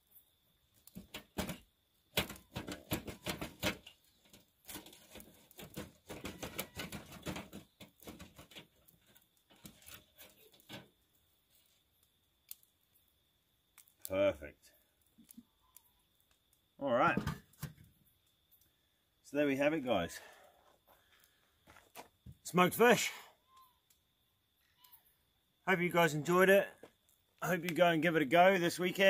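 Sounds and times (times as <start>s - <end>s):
spatula scraping wire grill grate: 2.2s - 10.9s.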